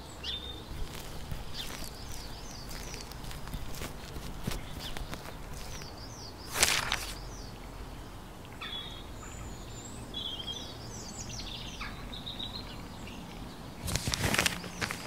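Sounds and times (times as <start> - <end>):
songbirds chirping: 0.0 - 15.0
paper rustling: 0.7 - 7.2, 13.8 - 15.0.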